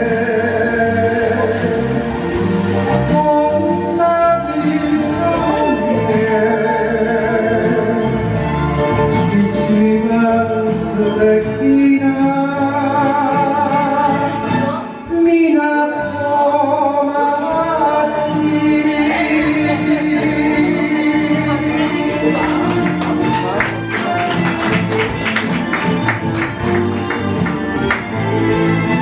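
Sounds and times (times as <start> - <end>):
person singing into a microphone: 0.0 - 8.3, 9.2 - 23.3
karaoke backing track: 0.0 - 29.0.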